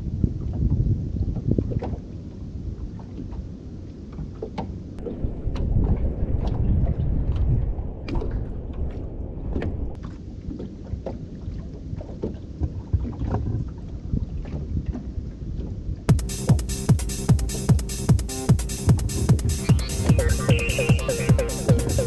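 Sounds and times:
wind rumble on microphone: 0.0 - 16.1
waves lapping against boat hull: 0.1 - 16.1
splashes and knocks: 4.1 - 15.8.

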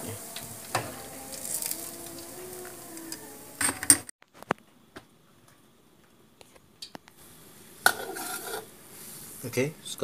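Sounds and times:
hot oil sizzling in a pan: 0.0 - 2.3, 7.2 - 9.7.

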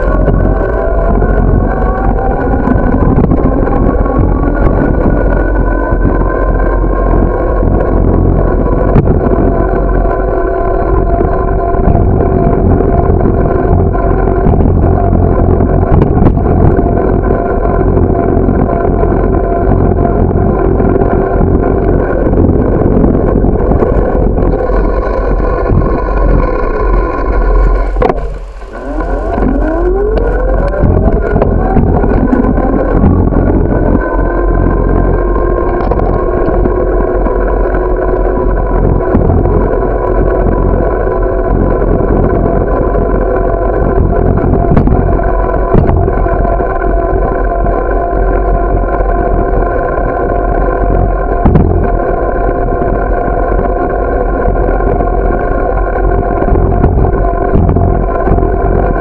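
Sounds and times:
bicycle rolling on pavement: 0.0 - 59.0
tone climbing in pitch: 21.6 - 40.1.

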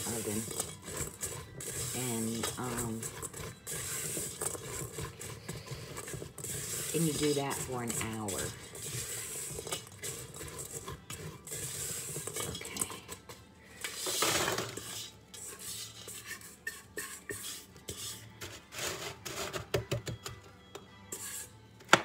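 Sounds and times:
nuts rattling: 0.0 - 13.1
spatula scraping steel pot: 0.0 - 19.7, 21.1 - 21.5.

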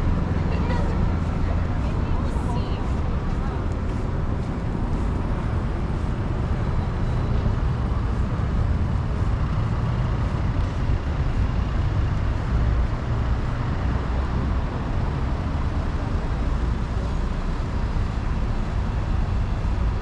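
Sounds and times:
traffic rumble: 0.0 - 20.0.

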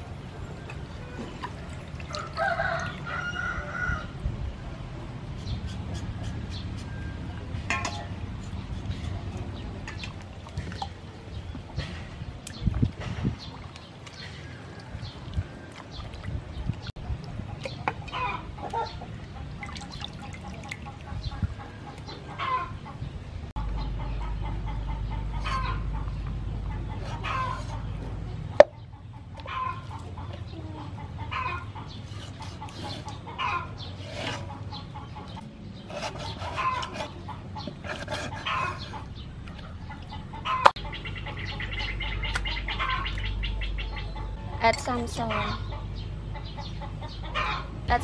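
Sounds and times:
chickens clucking: 16.6 - 47.9.

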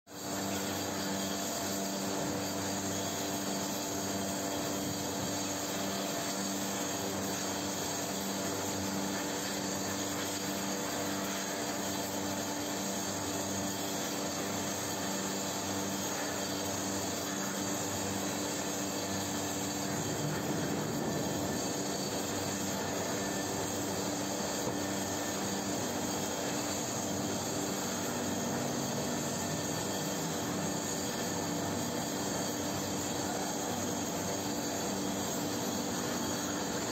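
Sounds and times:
casting machinery roar and hiss: 0.1 - 36.9
low machine hum: 17.3 - 36.9.

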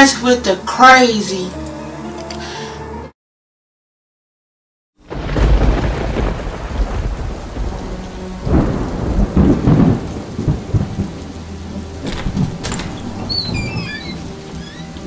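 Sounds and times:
heavy rain: 5.0 - 15.0
rumbling thunder: 5.1 - 14.4.

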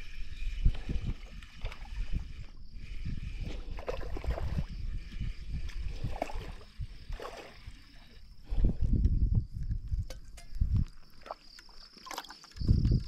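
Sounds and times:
low rumble on microphone: 0.0 - 7.2, 8.1 - 11.0
water sloshing and gurgling: 0.0 - 13.0.

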